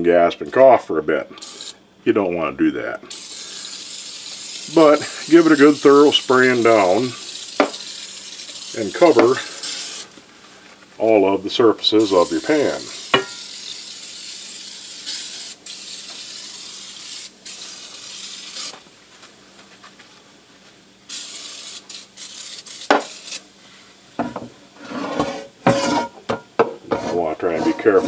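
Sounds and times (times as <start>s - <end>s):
aerosol spray hissing: 1.4s - 1.8s, 3.1s - 10.1s, 12.0s - 18.8s, 21.1s - 23.4s.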